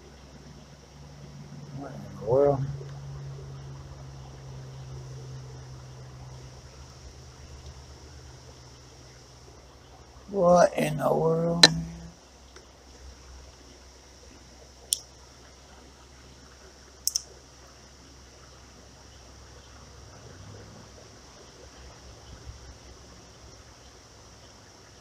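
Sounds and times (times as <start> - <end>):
creek water: 0.0 - 25.0
fishing reel clicks: 17.0 - 17.3.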